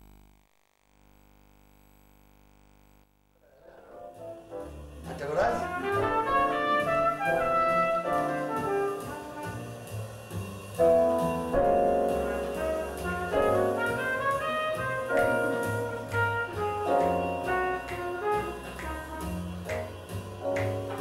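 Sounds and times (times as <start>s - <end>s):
jazz with brass horns: 4.0s - 21.0s
low bass line: 4.4s - 21.0s.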